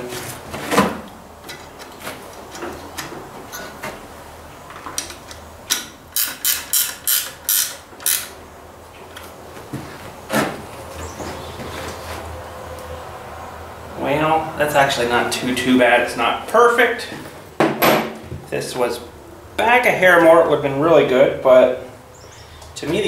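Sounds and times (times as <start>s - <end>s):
hand tools clicking and knocking: 4.7s - 8.4s.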